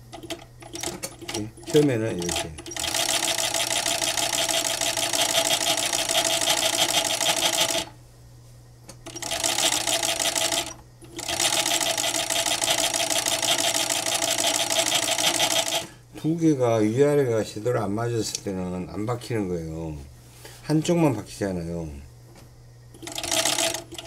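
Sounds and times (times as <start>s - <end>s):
sewing machine stitching: 0.3s - 7.9s, 9.1s - 15.9s, 23.0s - 24.0s.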